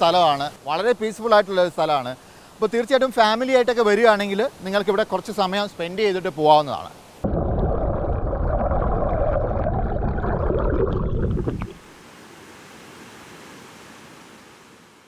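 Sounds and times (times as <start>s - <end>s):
waterfall hiss: 0.0s - 7.2s, 11.2s - 15.0s
muffled underwater stream rumble: 7.2s - 11.8s.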